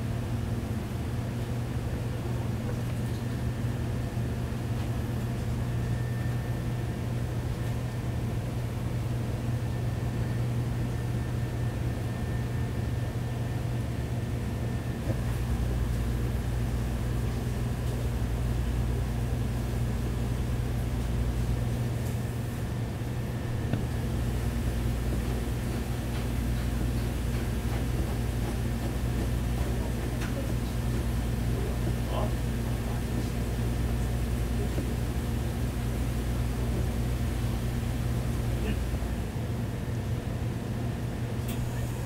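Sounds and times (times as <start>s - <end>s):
kitchen machinery hum: 0.0s - 42.0s.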